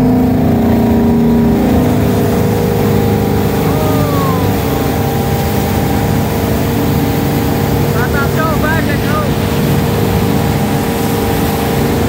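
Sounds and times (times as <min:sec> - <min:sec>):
boat engine running: 0:00.0 - 0:12.0
rush of churning wake: 0:00.0 - 0:12.0.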